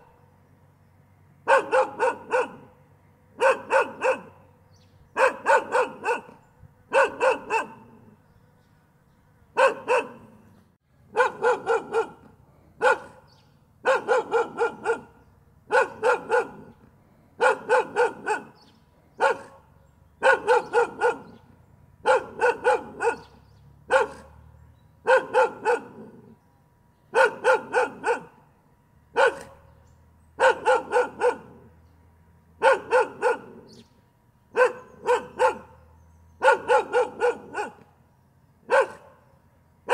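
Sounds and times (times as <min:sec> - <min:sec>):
dog barking: 0:01.4 - 0:02.8, 0:03.4 - 0:04.5, 0:05.1 - 0:08.1, 0:09.6 - 0:10.5, 0:11.1 - 0:16.8, 0:17.4 - 0:24.4, 0:25.0 - 0:26.4, 0:27.1 - 0:28.4, 0:29.1 - 0:29.7, 0:30.4 - 0:31.7, 0:32.6 - 0:33.8, 0:34.5 - 0:37.9, 0:38.6 - 0:39.3.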